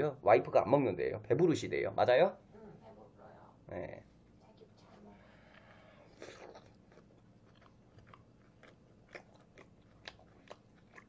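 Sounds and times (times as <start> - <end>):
faint close-up chewing: 4.8 - 11.0.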